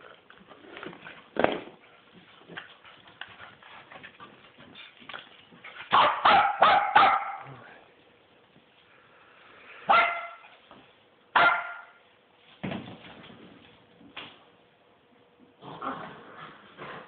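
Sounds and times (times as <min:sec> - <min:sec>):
small dogs barking: 0:05.9 - 0:07.6, 0:09.9 - 0:10.5, 0:11.3 - 0:12.0.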